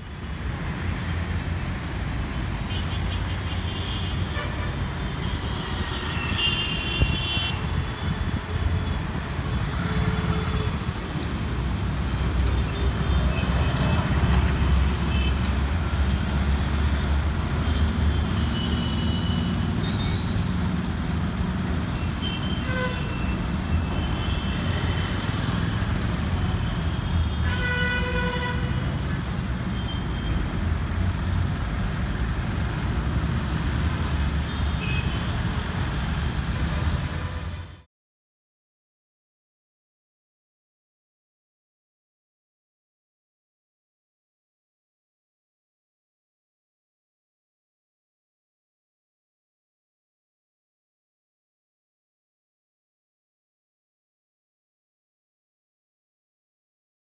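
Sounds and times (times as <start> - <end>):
road traffic rumbling: 0.0 - 37.9.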